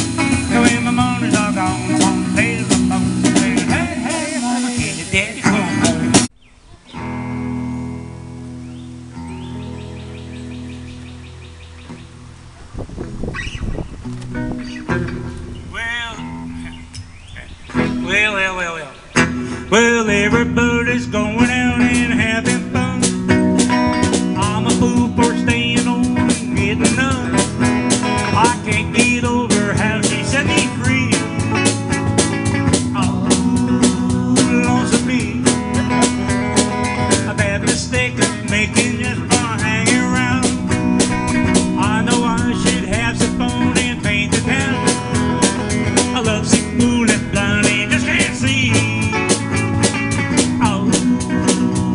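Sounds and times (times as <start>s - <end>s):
drum beat: 0.0s - 6.3s, 21.2s - 51.9s
electric guitar notes: 0.0s - 51.9s.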